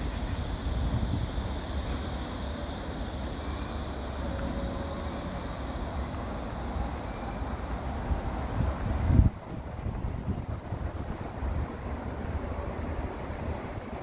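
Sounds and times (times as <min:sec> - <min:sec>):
wind rumble on microphone: 0:00.0 - 0:02.2, 0:07.9 - 0:14.0
traffic noise: 0:00.0 - 0:14.0.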